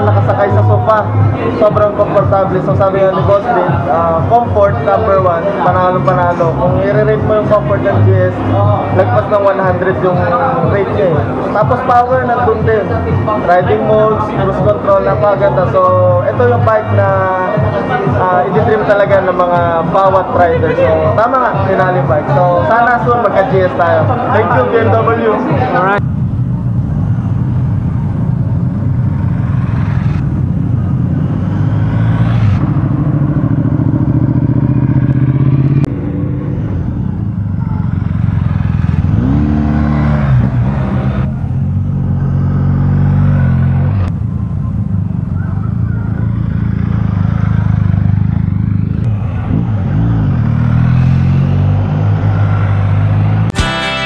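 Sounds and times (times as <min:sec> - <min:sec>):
motorcycle engine revving: 0:25.9 - 0:54.0.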